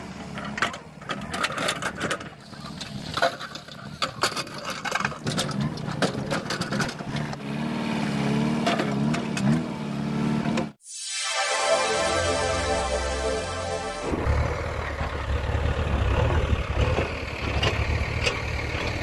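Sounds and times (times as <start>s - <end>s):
diesel engine running: 13.7s - 19.0s.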